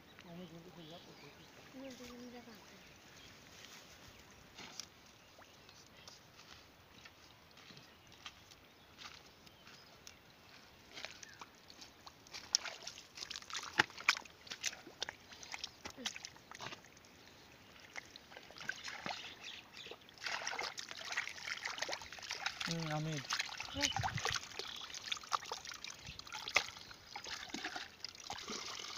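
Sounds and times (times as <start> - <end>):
hands squelching through mud: 10.9 - 17.0, 17.7 - 28.9.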